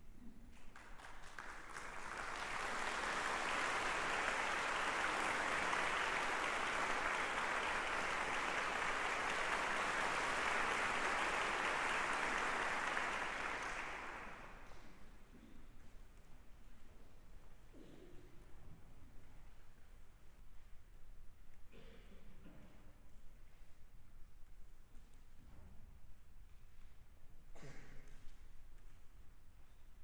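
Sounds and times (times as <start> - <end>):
audience applauding: 0.7 - 14.7.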